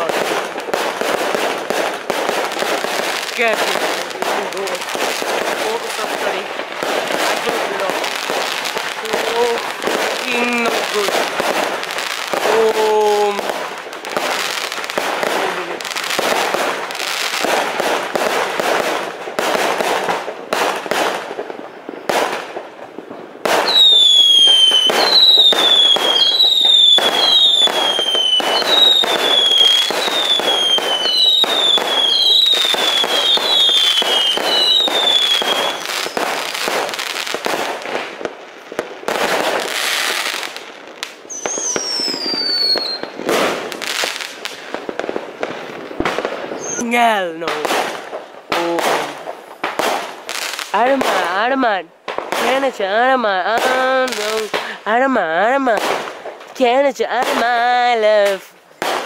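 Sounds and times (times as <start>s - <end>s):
fireworks crackling and banging: 0.0s - 59.0s
short falling whistles: 41.3s - 43.0s.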